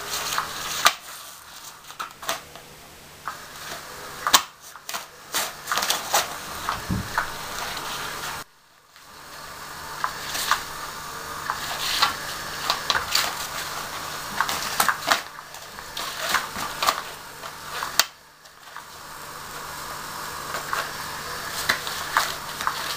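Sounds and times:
toy motor whirring: 3.5s - 8.5s, 11.4s - 18.9s, 20.4s - 22.9s.

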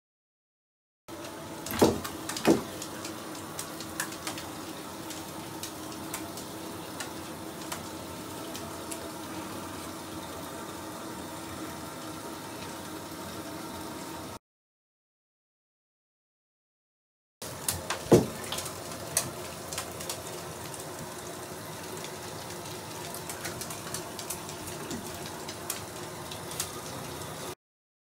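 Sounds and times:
bath bomb fizzing: 1.5s - 10.5s, 17.4s - 27.6s.

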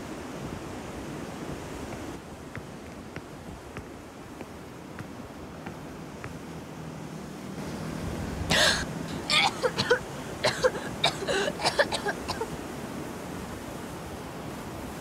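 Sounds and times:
person gasping: 8.5s - 9.3s, 10.1s - 11.6s
person coughing: 8.5s - 12.5s.

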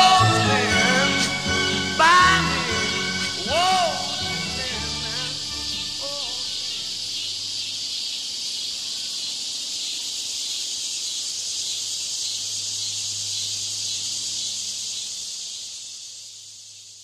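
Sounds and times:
high-pitched hiss: 0.0s - 17.0s.

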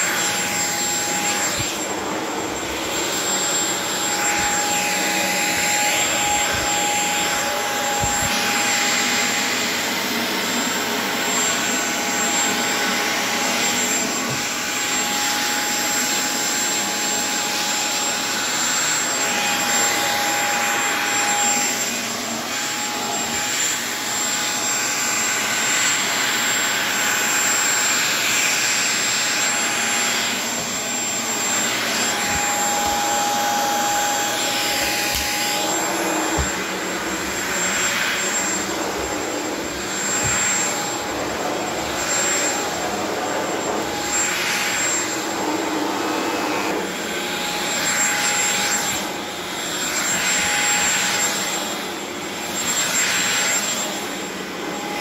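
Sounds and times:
vacuum cleaner suction on rug: 0.0s - 55.0s.

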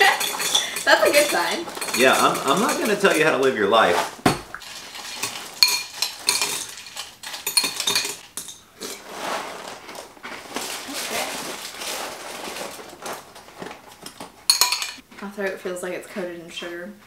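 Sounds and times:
metal spoon clinking in glass bowl: 0.0s - 3.5s, 4.9s - 8.9s, 14.5s - 15.0s
plastic liner rustling: 8.8s - 14.1s.

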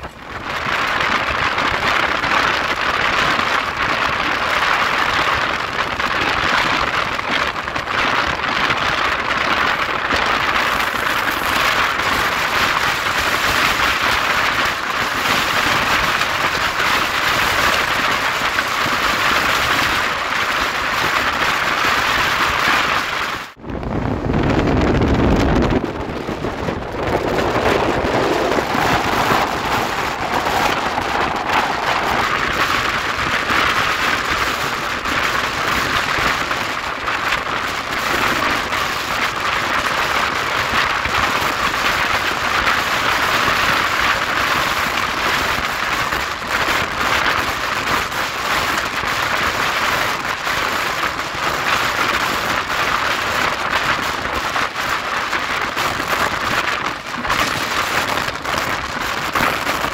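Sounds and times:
wheel-on-rail clatter: 0.0s - 23.5s, 25.5s - 59.9s
wind rushing past train: 0.0s - 59.9s
heavy low rumble: 23.6s - 38.8s.

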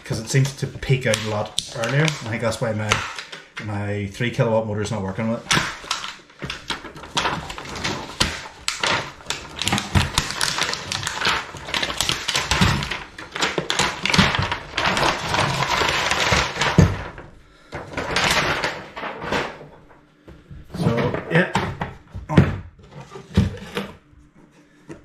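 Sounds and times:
plastic shrink wrap crinkling: 0.0s - 4.4s, 5.0s - 20.1s.

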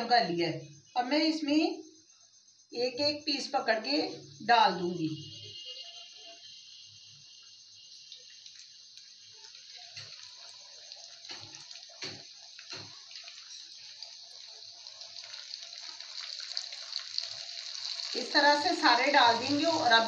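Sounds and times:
chicken deep-frying in oil: 5.8s - 20.0s
sharp oil pops: 11.2s - 13.0s.

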